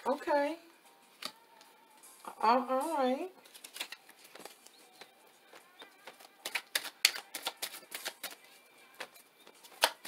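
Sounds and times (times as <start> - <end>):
cards being shuffled: 1.1 - 1.7, 3.4 - 10.0.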